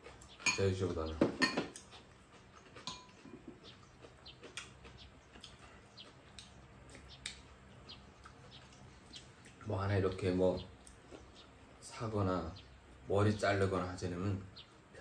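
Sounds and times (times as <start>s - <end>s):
soft eating noises: 0.0s - 15.0s
utensils clicking against bowls: 2.8s - 3.4s.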